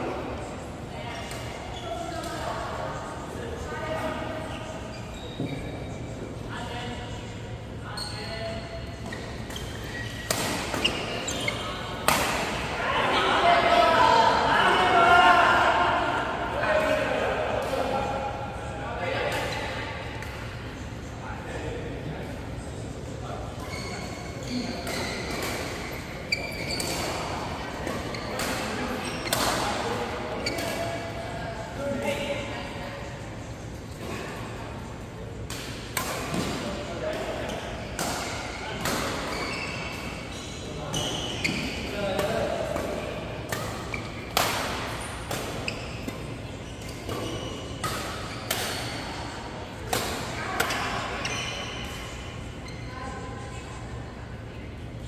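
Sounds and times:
shoe squeaks on court floor: 4.4s - 6.2s, 7.8s - 12.0s, 23.6s - 27.3s, 28.0s - 29.6s, 39.2s - 41.9s, 50.7s - 53.0s
racket hitting shuttlecock: 9.5s - 11.0s, 12.0s - 12.7s, 42.2s - 46.3s, 47.0s - 49.2s.

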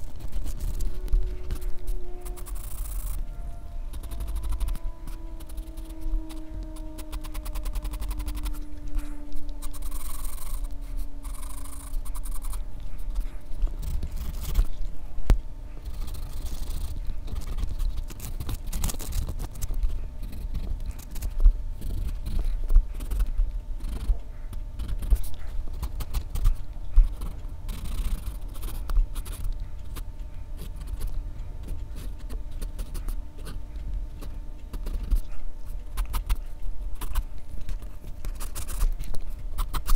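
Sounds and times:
pencil scratching on paper: 0.0s - 3.2s, 9.6s - 14.7s, 38.3s - 39.0s.

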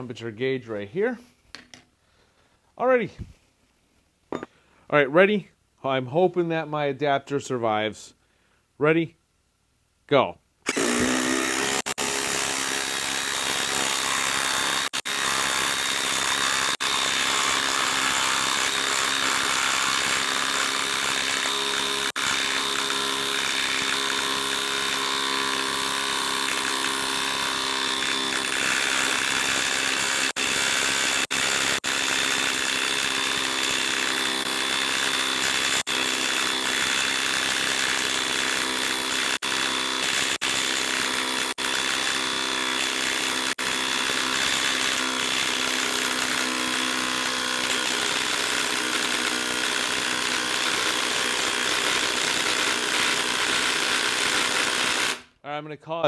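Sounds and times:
impact driver hammering: 10.7s - 55.2s.

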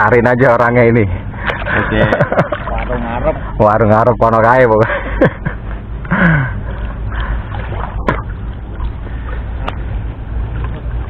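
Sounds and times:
water sloshing around person wading: 1.2s - 3.6s, 5.0s - 11.0s
low rumble: 5.5s - 11.0s.

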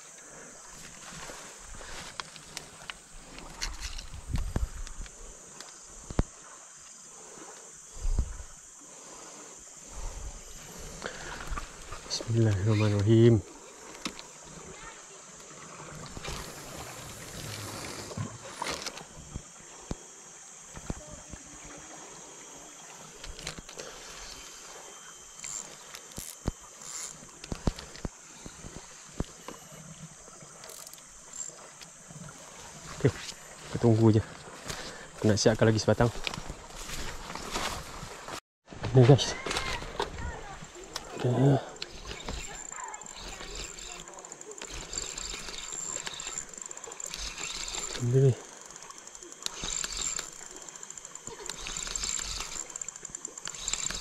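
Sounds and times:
insects buzzing: 0.0s - 54.0s
fishing rod knocking and clicking: 41.8s - 54.0s.

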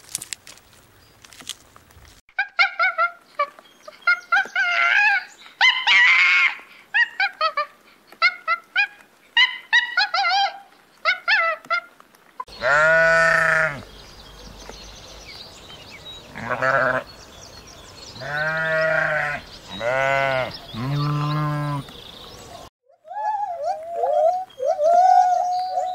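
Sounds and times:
sheep bleating: 12.5s - 13.8s, 16.3s - 17.1s, 18.2s - 21.8s.

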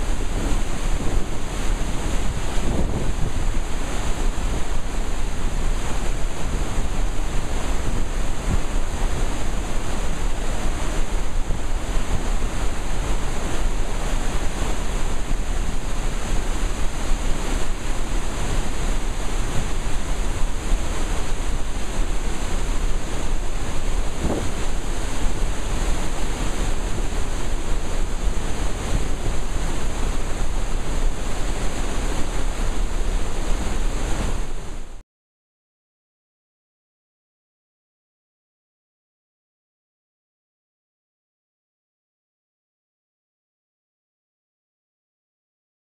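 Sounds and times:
wind buffeting microphone: 0.0s - 34.9s
rushing water: 0.0s - 35.0s.

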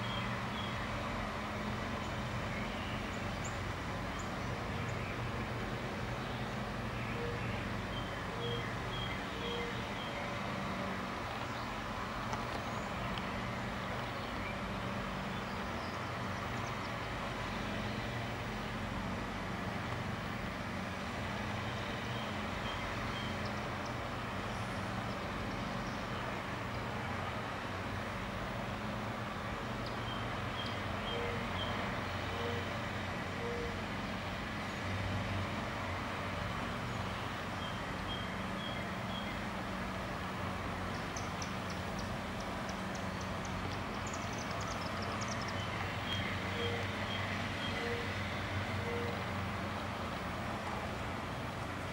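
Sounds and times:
distant road traffic rumble: 0.0s - 51.9s.

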